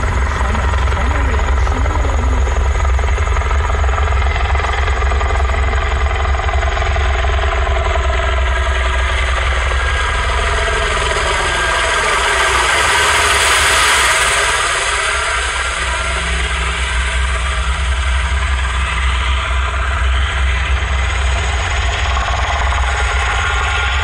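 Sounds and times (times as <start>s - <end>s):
helicopter rotor over loudspeakers: 0.0s - 24.0s.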